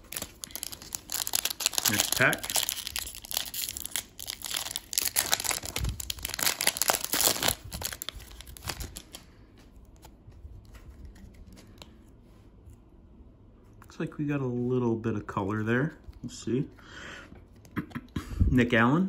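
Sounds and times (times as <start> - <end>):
foil wrapper tearing and crinkling: 0.0 - 9.2.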